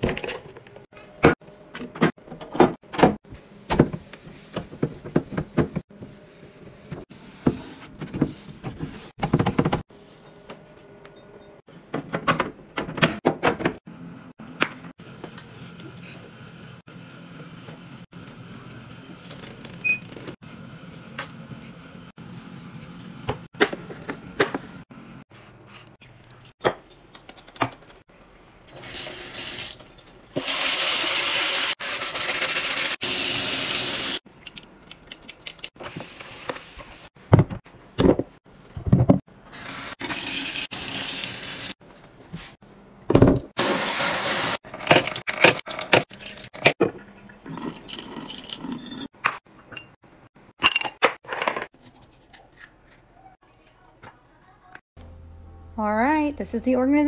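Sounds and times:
knocks and clatter of containers: 37.3s - 39.3s.

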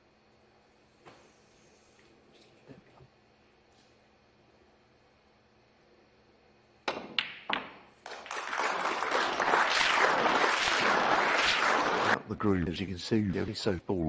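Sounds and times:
cue striking ball: 6.9s - 7.9s
audience applause: 8.1s - 12.2s.

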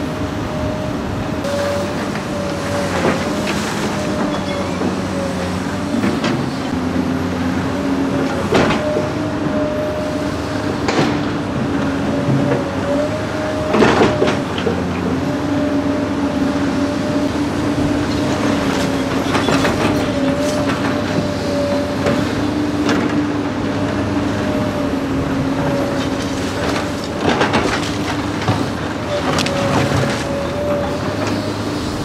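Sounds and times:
diesel engines rumbling: 0.0s - 32.0s.

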